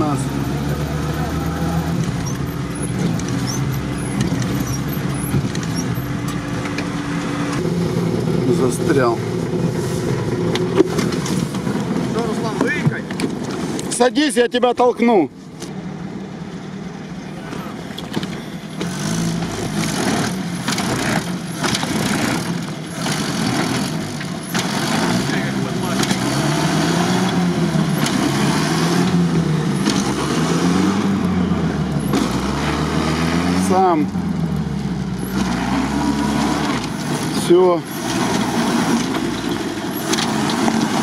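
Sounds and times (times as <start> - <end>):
engine humming inside cabin: 0.0 - 13.9
engine revving: 0.0 - 14.3, 15.6 - 41.0
wheels spinning in snow: 35.2 - 41.0.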